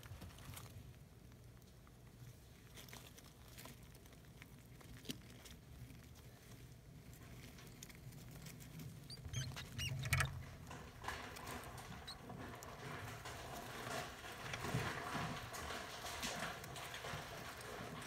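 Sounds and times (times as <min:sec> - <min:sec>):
rats squeaking: 0:07.6 - 0:10.5, 0:11.1 - 0:12.6.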